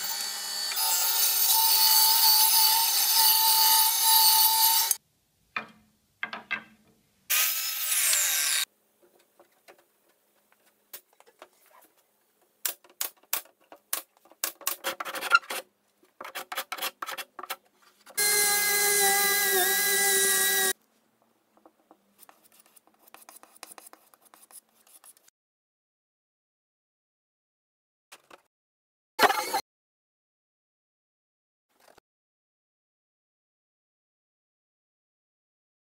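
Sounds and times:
blade scraping wooden boards: 14.5s - 18.2s.

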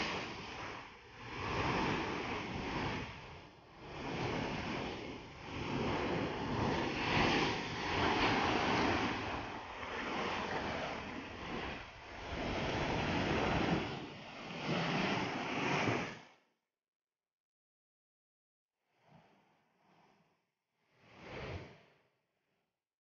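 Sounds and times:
surf breaking over rocks: 0.0s - 13.9s.

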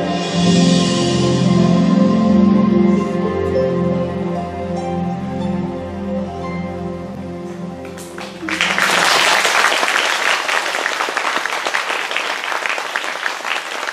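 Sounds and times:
music with held notes: 0.0s - 9.1s
audience applause: 7.8s - 13.9s.

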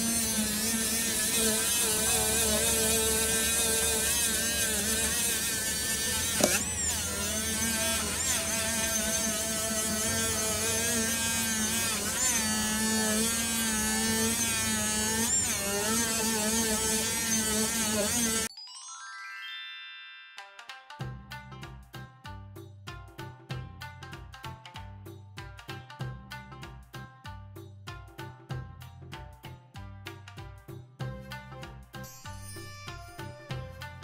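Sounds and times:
rotary tool whining: 0.0s - 18.5s.

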